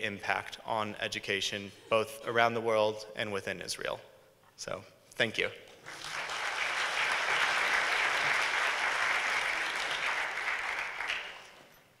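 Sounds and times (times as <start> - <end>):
audience applauding: 5.8 - 11.8.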